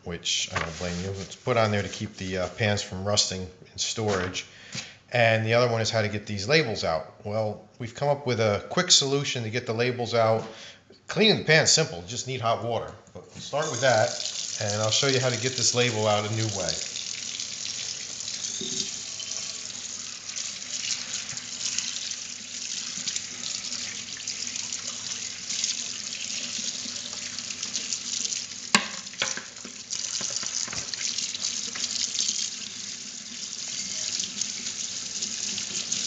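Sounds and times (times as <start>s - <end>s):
faucet running into sink: 13.6s - 36.0s.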